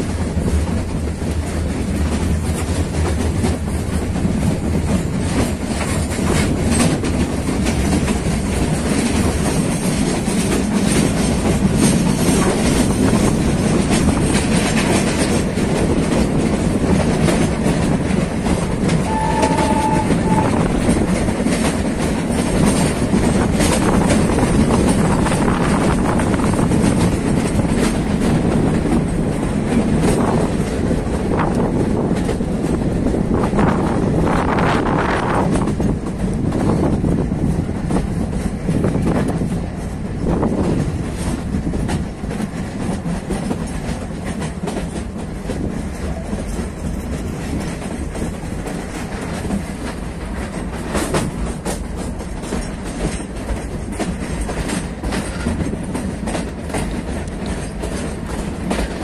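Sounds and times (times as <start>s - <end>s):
train rumble: 0.0s - 59.0s
train wheels clicking over rail joints: 0.0s - 59.0s
short high tone: 19.0s - 20.6s.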